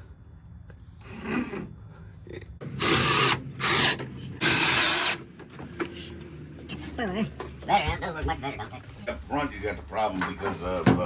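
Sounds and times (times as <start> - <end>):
cordless drill driving screws: 2.8 - 5.2.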